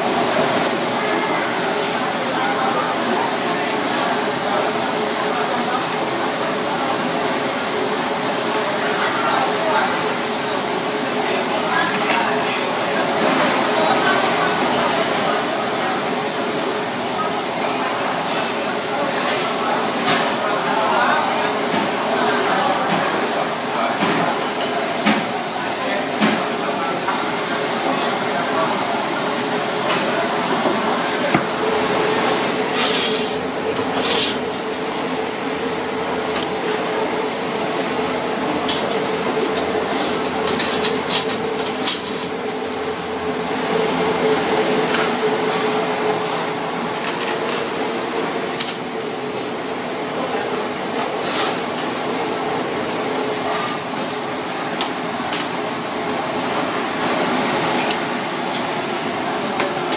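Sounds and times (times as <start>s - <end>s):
kitchen machinery humming: 0.0s - 59.9s.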